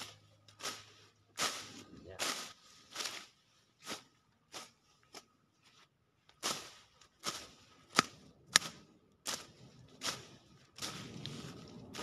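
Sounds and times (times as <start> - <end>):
leafy plants rustling: 0.0 - 12.0
stems snapping: 6.4 - 11.4.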